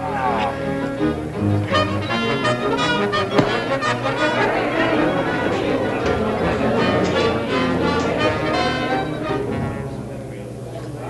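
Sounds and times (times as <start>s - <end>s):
sharp knock: 3.4s - 3.8s.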